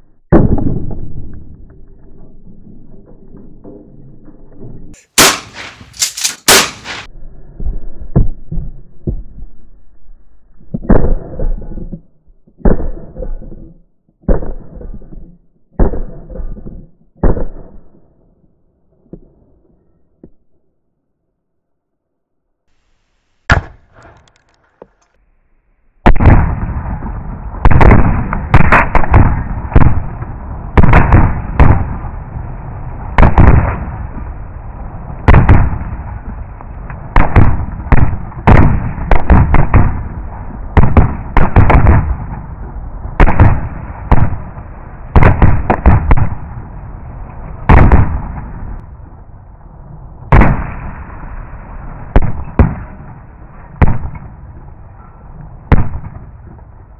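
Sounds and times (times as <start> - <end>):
echoing gunshots: 5.0 - 7.1, 23.5 - 24.2, 26.0 - 36.4, 37.0 - 46.8, 47.6 - 48.7, 50.3 - 54.4, 55.6 - 56.4.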